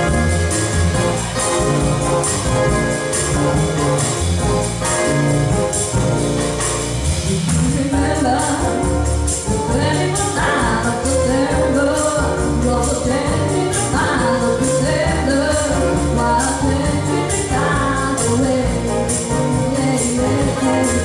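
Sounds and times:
bass: 0:00.0 - 0:21.0
grand piano: 0:00.0 - 0:21.0
tambourine shaken in rhythm: 0:00.0 - 0:21.0
woman singing: 0:07.5 - 0:21.0.

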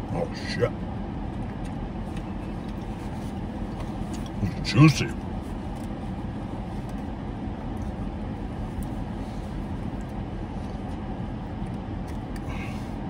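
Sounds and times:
air conditioning blowing: 0:00.0 - 0:13.0
car engine idling: 0:00.0 - 0:13.0.

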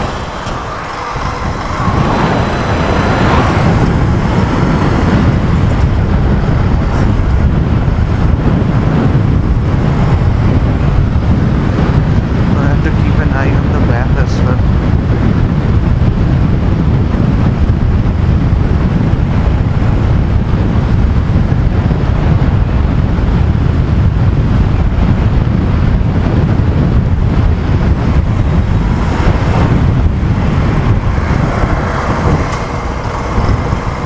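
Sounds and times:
motorcycle road and engine noise: 0:00.0 - 0:34.0
wind rushing over microphone: 0:00.0 - 0:34.0.

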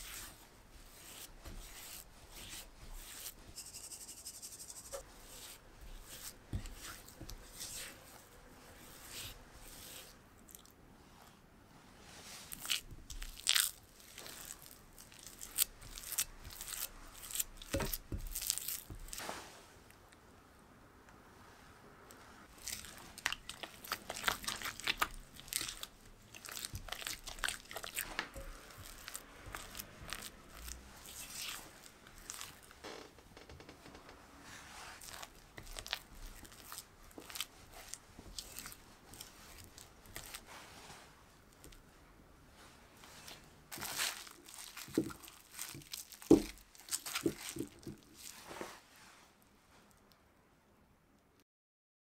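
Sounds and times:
spatula scraping thick batter: 0:00.0 - 0:10.2, 0:22.6 - 0:32.8, 0:34.4 - 0:41.1.

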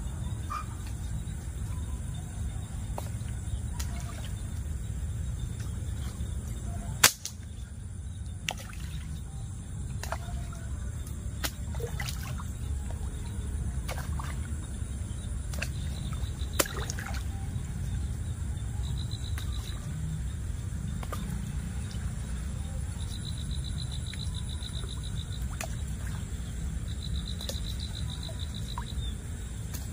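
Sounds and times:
steady low rumble: 0:00.0 - 0:29.9
fish popping and splashing: 0:11.4 - 0:12.5, 0:15.5 - 0:17.2.

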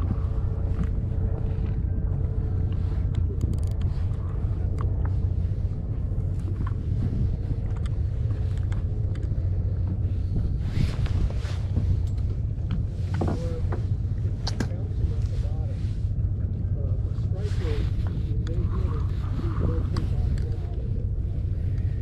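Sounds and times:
boat engine rumbling: 0:00.0 - 0:22.0
faint clicks: 0:07.7 - 0:09.4.

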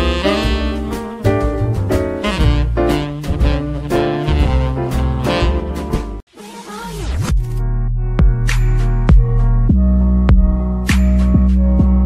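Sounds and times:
upbeat jazzy music with brass: 0:00.0 - 0:06.2.

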